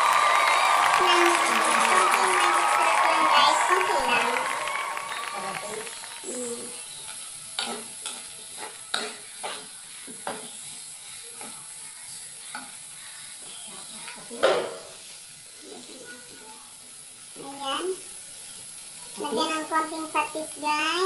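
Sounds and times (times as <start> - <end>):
food sizzling: 0.0 - 21.0
spatula scraping a metal wok: 7.1 - 11.6.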